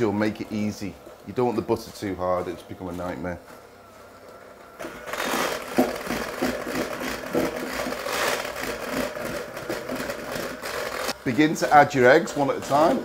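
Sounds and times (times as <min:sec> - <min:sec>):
electric hand whisk motor whirring: 0:04.8 - 0:13.0.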